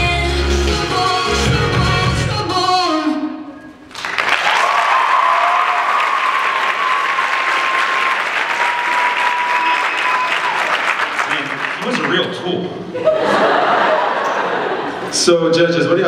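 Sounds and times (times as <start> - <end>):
pop song: 0.0 - 3.5
audience applause and cheering: 3.9 - 12.5.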